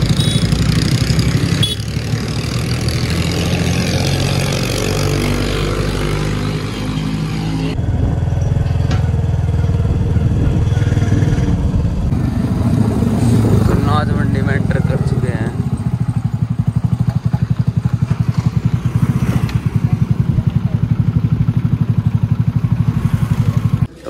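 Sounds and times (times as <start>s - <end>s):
motorcycle engine running: 0.0s - 23.9s
wind noise on microphone: 9.8s - 13.9s.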